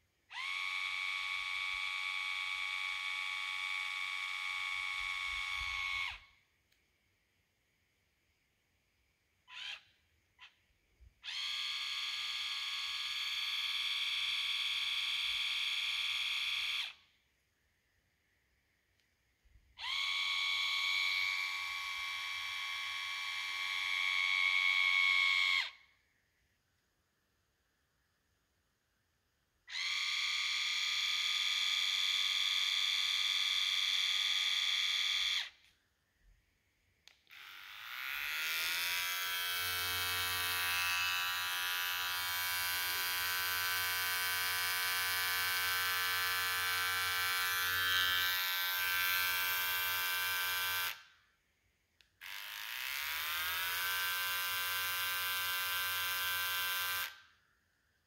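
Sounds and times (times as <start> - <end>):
electric shaver buzzing: 37.2 - 51.0, 52.2 - 57.2.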